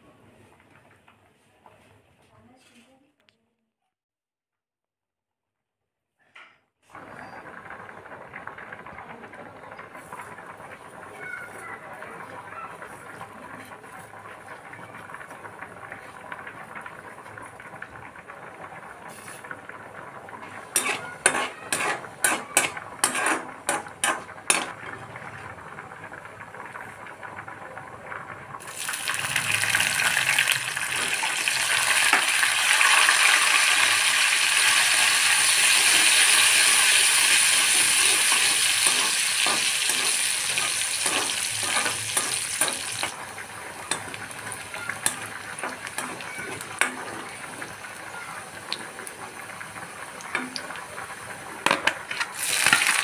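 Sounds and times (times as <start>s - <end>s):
garlic sizzling in hot oil: 19.0s - 24.8s, 28.6s - 53.0s.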